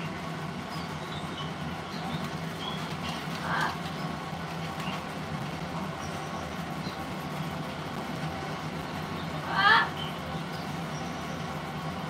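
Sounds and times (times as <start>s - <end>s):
steady low hum: 0.0s - 12.0s
parrot squawk: 9.4s - 10.0s.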